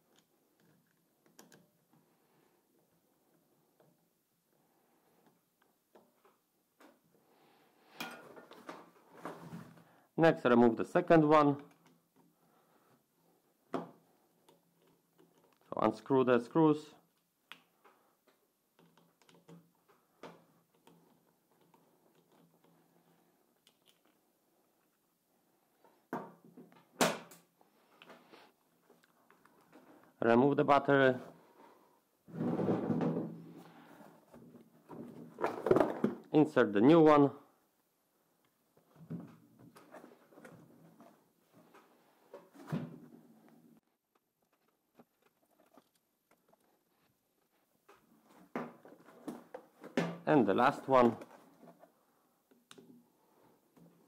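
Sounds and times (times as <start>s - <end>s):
handling knocks and rustles: 32.3s - 36.3s, 44.1s - 50.3s.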